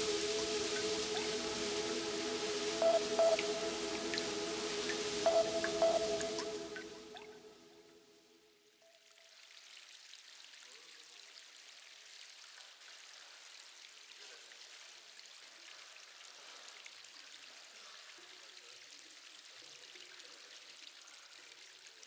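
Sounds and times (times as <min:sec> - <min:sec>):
faint running water: 0:00.0 - 0:07.5.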